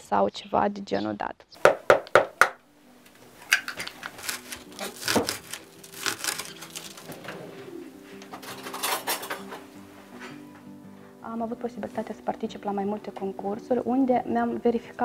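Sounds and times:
spoon clicking and scraping: 3.5s - 4.2s
egg cracked against plastic bowl: 3.5s - 5.4s.

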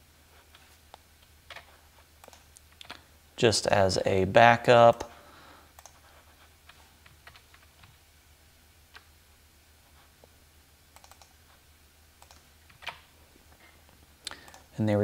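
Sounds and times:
mouse and keyboard clicks: 1.5s - 3.0s, 11.0s - 11.3s, 12.2s - 13.1s.

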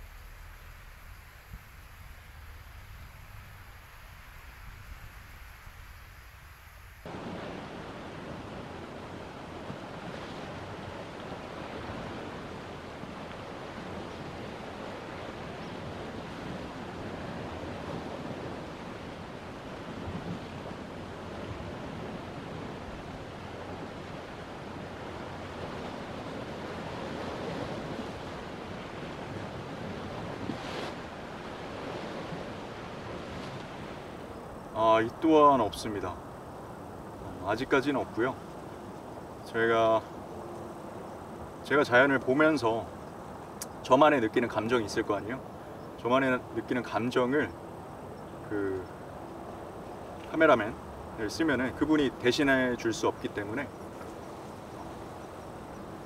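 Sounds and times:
steady rushing noise: 0.0s - 14.0s
faint click: 43.0s - 43.8s.

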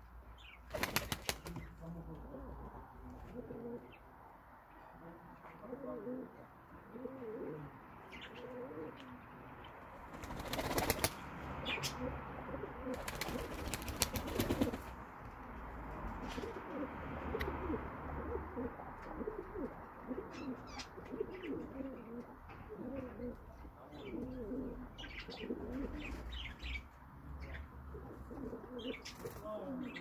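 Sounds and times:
wings flapping: 0.7s - 1.8s, 10.1s - 11.2s, 12.9s - 15.0s
pigeons cooing: 0.8s - 4.0s, 5.4s - 9.2s, 10.4s - 14.9s, 16.2s - 26.8s, 27.4s - 30.0s.

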